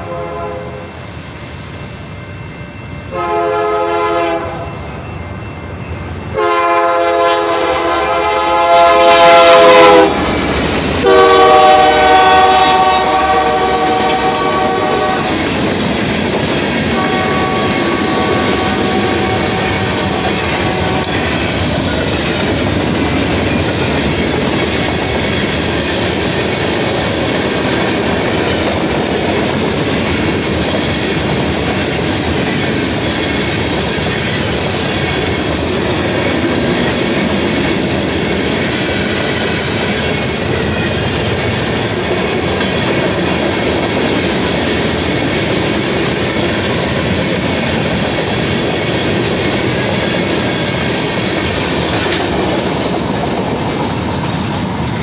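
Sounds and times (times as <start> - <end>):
locomotive air horn blasts: 0.0 - 0.9, 3.1 - 4.8, 6.4 - 10.2, 11.0 - 15.4, 16.9 - 21.2.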